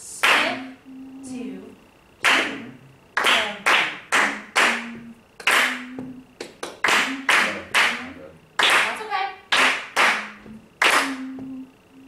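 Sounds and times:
hands clapping a rhythm: 0:00.2 - 0:00.8, 0:02.2 - 0:11.6.

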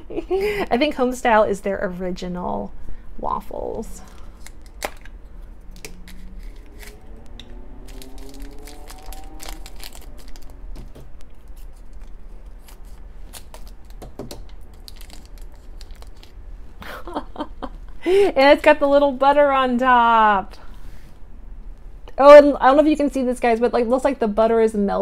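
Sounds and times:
foil wrapper crinkling and tearing: 0:07.9 - 0:16.4.

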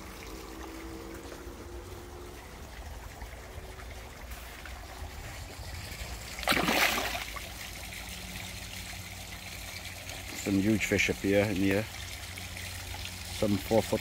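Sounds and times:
fish splashing in pond: 0:00.0 - 0:10.4
low trickle of pond water: 0:00.0 - 0:14.0.

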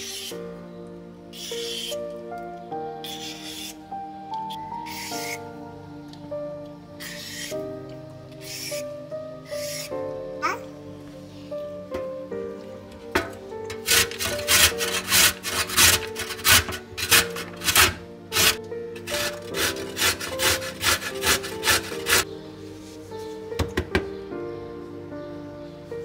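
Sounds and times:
carrot grated on metal grater: 0:13.7 - 0:22.2.

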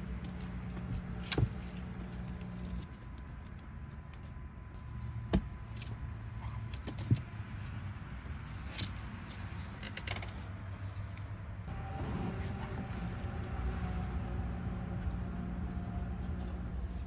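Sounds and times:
steady low hum: 0:10.6 - 0:17.0.

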